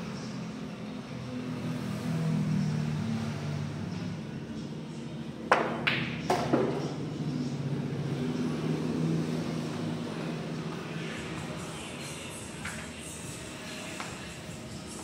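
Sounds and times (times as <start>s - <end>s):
pool cue striking ball: 5.5s - 6.9s
billiard balls clacking: 5.5s - 7.0s.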